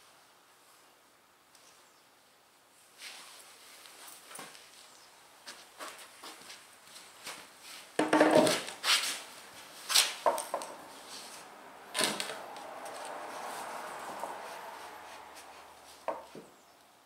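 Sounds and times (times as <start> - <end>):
wooden boards clunking: 8.0 - 8.7.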